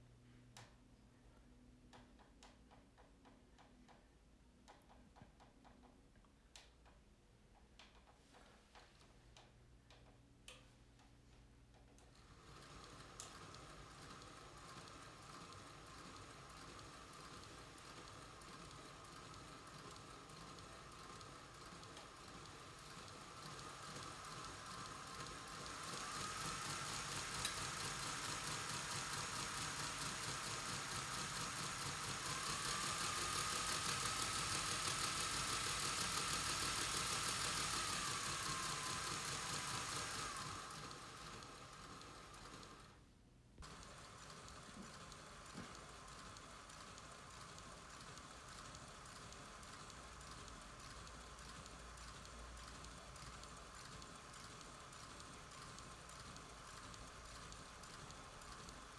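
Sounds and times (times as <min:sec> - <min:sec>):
fast ticking of gears: 0:12.1 - 0:43.0, 0:43.6 - 0:58.9
model train motor whine: 0:12.2 - 0:43.0, 0:43.6 - 0:58.9.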